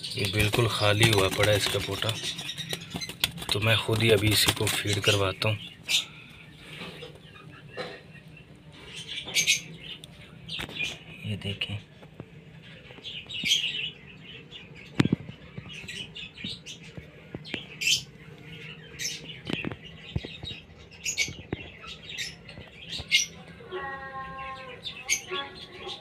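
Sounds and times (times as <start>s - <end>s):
high-pitched bird chirps: 20.3s - 26.0s.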